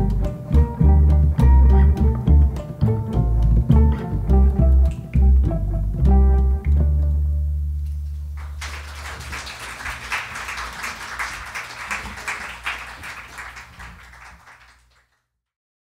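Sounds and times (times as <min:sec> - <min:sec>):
audience applauding: 0:08.4 - 0:15.2.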